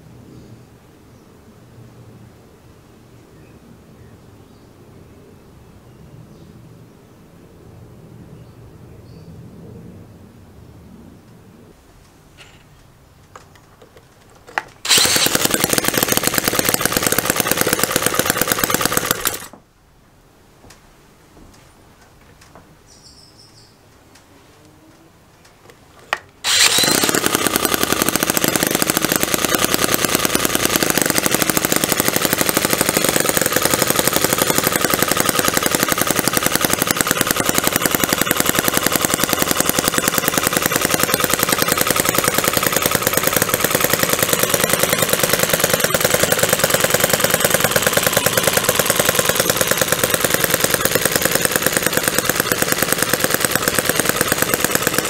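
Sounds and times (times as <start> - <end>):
model engine running: 14.4 - 19.6, 26.4 - 55.0
cordless drill: 14.5 - 19.6, 26.4 - 55.0.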